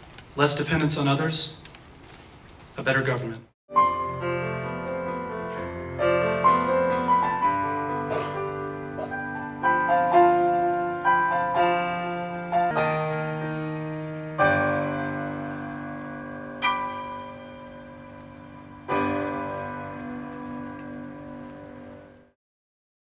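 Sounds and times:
solo piano: 0:03.7 - 0:22.4.

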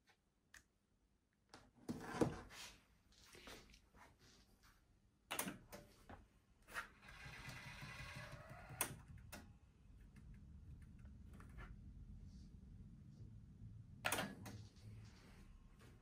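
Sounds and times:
faint low hum: 0:06.0 - 0:16.0
tape motor whirring: 0:07.0 - 0:09.0.

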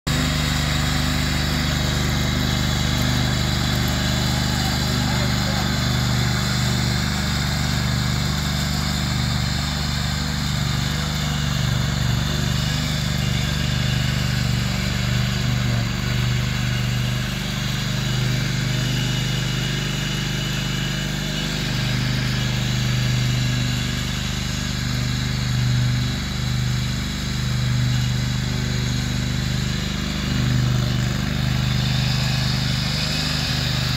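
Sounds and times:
lawn tractor engine running: 0:00.0 - 0:33.9
mower cutting dry grass: 0:00.1 - 0:33.9.

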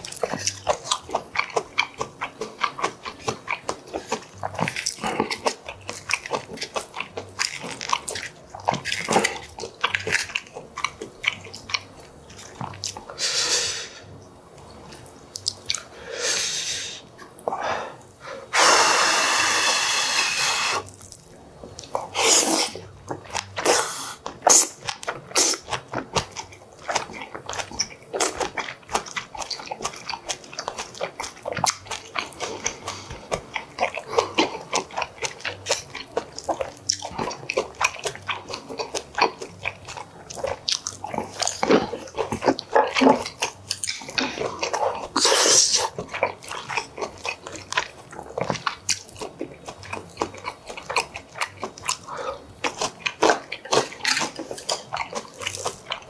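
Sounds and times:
close-miked chewing: 0:00.0 - 0:56.0
hiss: 0:13.2 - 0:14.0, 0:16.1 - 0:17.0, 0:18.5 - 0:20.8
wet mouth clicks and lip smacks: 0:15.3 - 0:15.9, 0:21.8 - 0:56.0.

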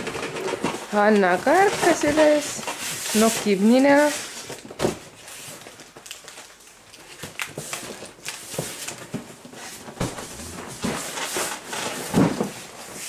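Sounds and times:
rustling: 0:05.2 - 0:13.0.

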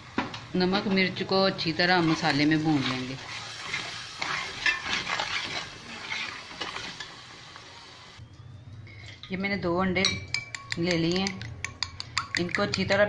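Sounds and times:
soft sizzle: 0:00.0 - 0:08.2
metal spoon scraping a pot: 0:01.7 - 0:07.1.

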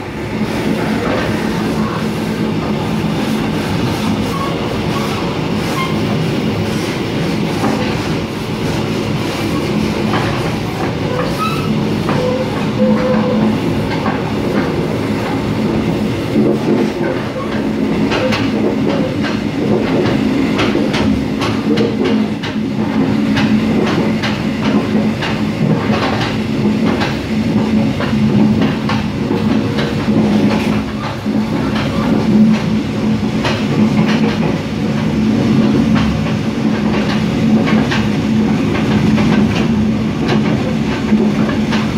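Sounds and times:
train wheels rumbling on rail: 0:00.0 - 0:41.9
wheels clicking over rail joints: 0:16.4 - 0:32.8, 0:33.4 - 0:41.9.

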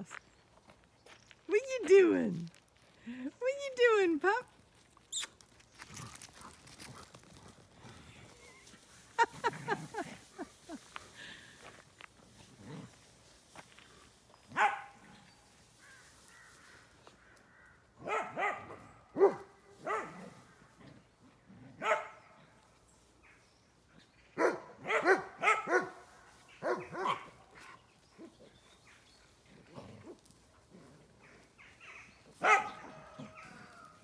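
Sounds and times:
dogs barking: 0:14.5 - 0:15.2, 0:18.0 - 0:20.4, 0:21.8 - 0:22.4, 0:24.4 - 0:27.6, 0:32.0 - 0:33.8.

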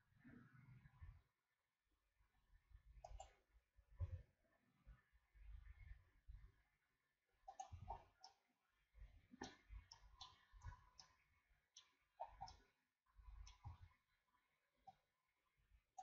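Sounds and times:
mouse and keyboard clicks: 0:03.0 - 0:03.4, 0:07.5 - 0:08.4, 0:09.4 - 0:12.7, 0:13.4 - 0:13.9.

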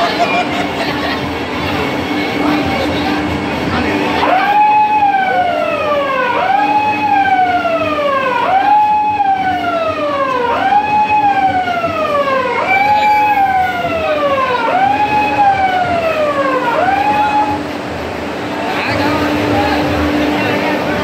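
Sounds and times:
siren wailing: 0:04.1 - 0:17.7.

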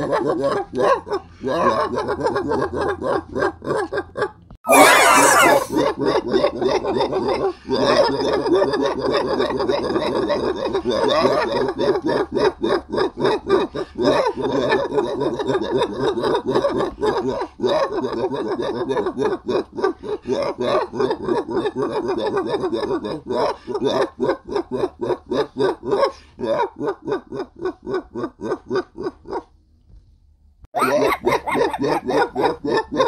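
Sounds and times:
people laughing and shrieking: 0:04.7 - 0:05.8, 0:30.8 - 0:32.6.

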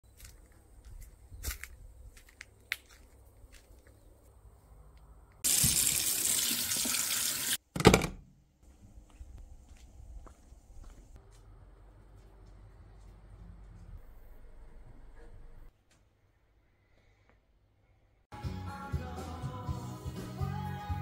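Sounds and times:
tap water running into a sink: 0:05.4 - 0:07.6.

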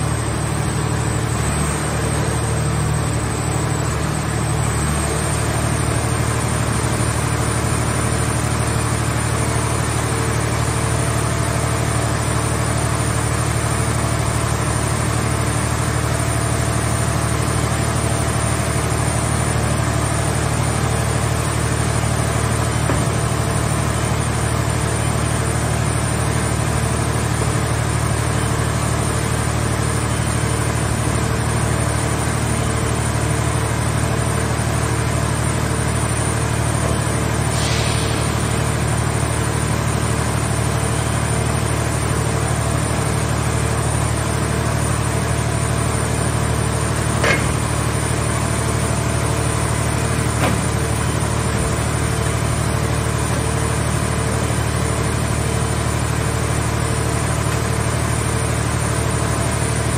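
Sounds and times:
hydraulic power unit droning: 0:00.0 - 0:59.9
brief hiss: 0:37.5 - 0:38.5
short knocks: 0:47.2 - 0:47.7.

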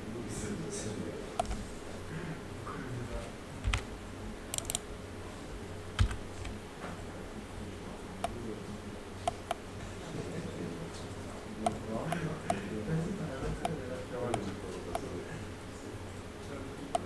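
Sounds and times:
low steady hum: 0:00.0 - 0:17.0
computer keyboard and mouse clicks: 0:01.4 - 0:01.6, 0:03.6 - 0:03.9, 0:04.5 - 0:04.8, 0:06.0 - 0:06.6.

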